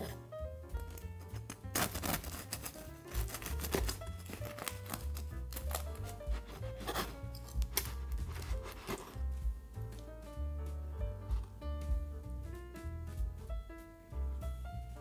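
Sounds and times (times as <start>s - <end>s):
background music: 0.0s - 15.0s
bread crust crackling as cut: 0.8s - 9.2s.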